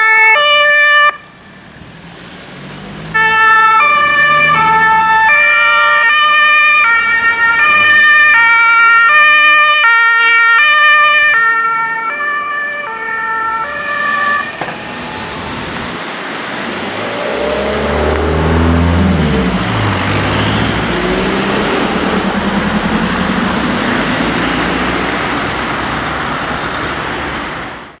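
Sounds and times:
two-tone emergency siren: 0.0s - 1.4s, 3.1s - 15.4s, 16.6s - 24.4s
traffic driving past: 1.0s - 28.0s
deep engine sound: 16.4s - 25.4s.

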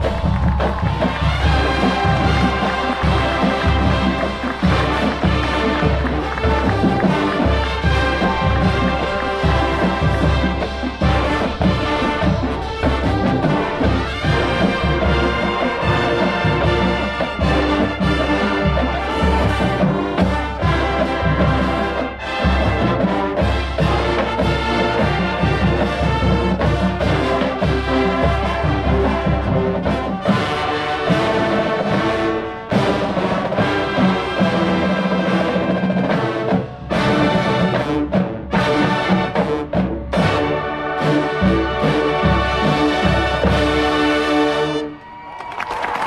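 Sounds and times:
low drum beat: 0.0s - 21.9s
light percussion: 0.0s - 43.9s
brass section playing: 0.0s - 46.0s.

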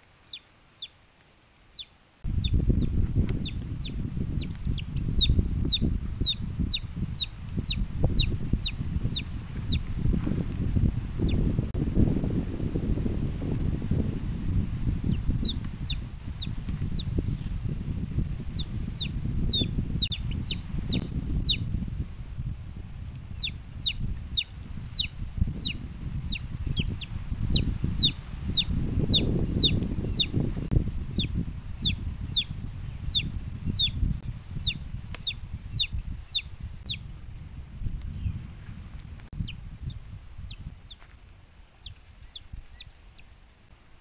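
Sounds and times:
chick peeping: 0.1s - 0.9s, 1.6s - 10.1s, 10.7s - 11.7s, 14.8s - 21.7s, 23.3s - 37.0s, 39.3s - 41.0s, 41.8s - 43.8s.

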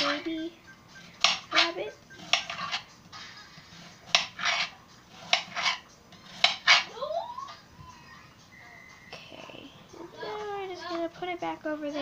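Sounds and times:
knife chopping apple on board: 1.2s - 2.8s, 4.0s - 6.9s.

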